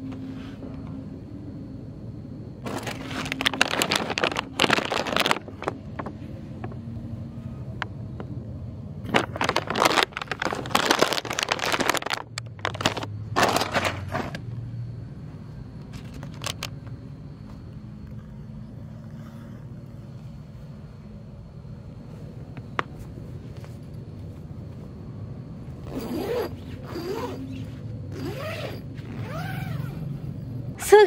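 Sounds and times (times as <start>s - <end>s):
steady low hum: 0.0s - 31.0s
nylon flap rustling: 2.6s - 5.8s, 9.0s - 14.4s
tent zipper being pulled: 25.8s - 30.1s.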